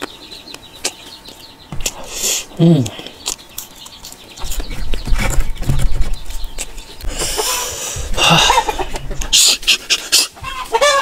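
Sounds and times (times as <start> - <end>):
person chewing: 0.0 - 5.0.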